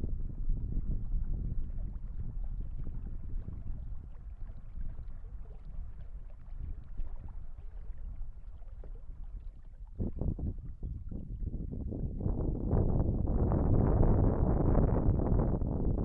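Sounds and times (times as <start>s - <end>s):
wind rumbling on microphone: 0.0s - 16.0s
water slapping against kayak hull: 1.6s - 11.2s.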